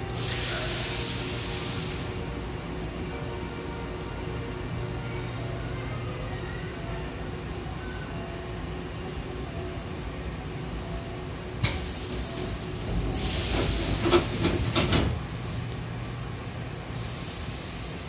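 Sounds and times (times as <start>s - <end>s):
air hissing from door engine: 0.1s - 2.2s, 11.6s - 15.7s, 16.9s - 18.0s.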